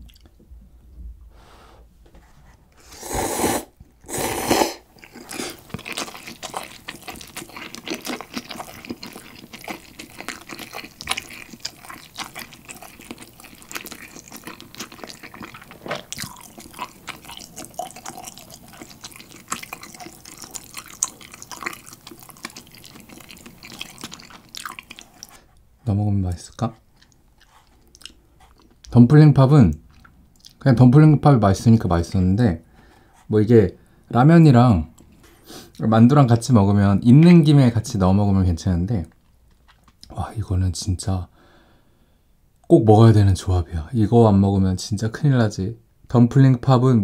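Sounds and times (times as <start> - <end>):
slurping noodles: 2.8 - 25.5
chewing noodles: 3.4 - 25.5, 26.4 - 29.0, 29.7 - 30.6.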